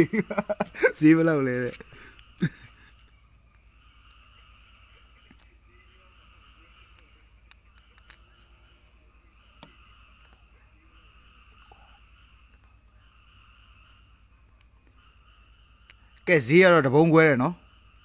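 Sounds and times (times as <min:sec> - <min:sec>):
frogs and insects chorus: 0:00.0 - 0:18.0
high insect trill: 0:00.0 - 0:18.0
soft clicks: 0:06.9 - 0:08.3.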